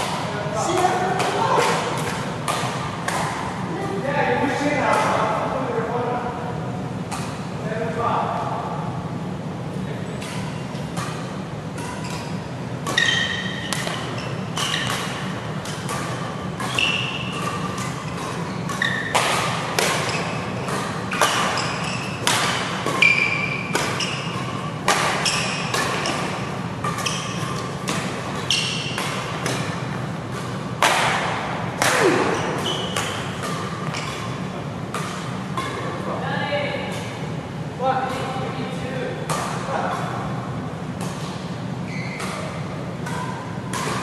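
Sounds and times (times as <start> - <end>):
rackets striking shuttlecock: 0.0 - 3.7, 4.8 - 5.4, 7.0 - 7.6, 10.2 - 36.2, 39.2 - 44.0
steady low hum: 0.0 - 44.0
shoes squeaking on court: 9.9 - 30.8, 32.0 - 36.0, 41.1 - 44.0.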